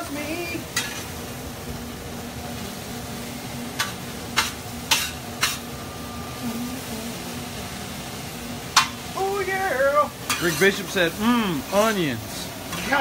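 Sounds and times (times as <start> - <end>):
vegetables sizzling in a pan: 0.0 - 13.0.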